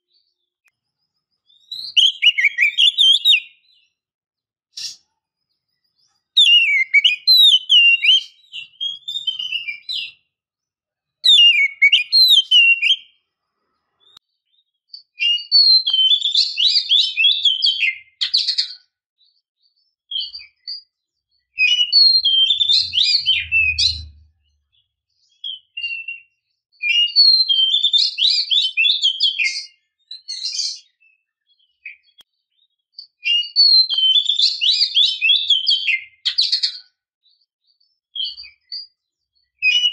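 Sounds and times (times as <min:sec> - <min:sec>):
bird singing whistled phrases: 0:01.5 - 0:03.9, 0:06.4 - 0:10.2, 0:11.2 - 0:13.2, 0:15.0 - 0:18.8, 0:21.5 - 0:24.3, 0:25.2 - 0:32.2, 0:33.2 - 0:36.8, 0:39.5 - 0:39.9.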